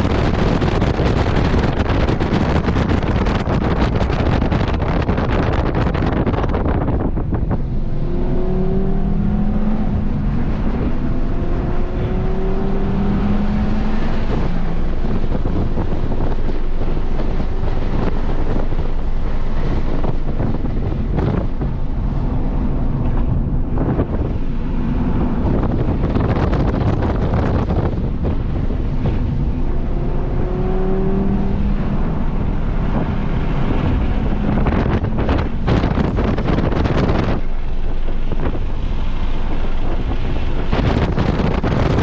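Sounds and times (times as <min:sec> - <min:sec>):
car engine at full throttle: 0:00.0 - 0:42.0
wind buffeting microphone: 0:00.0 - 0:42.0.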